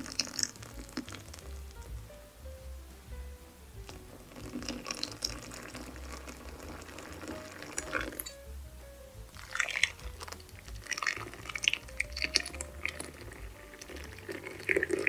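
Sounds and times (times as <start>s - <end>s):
liquid pouring and splashing: 0.0s - 1.9s, 3.9s - 8.4s, 9.3s - 15.0s
background music with bass: 0.0s - 15.0s.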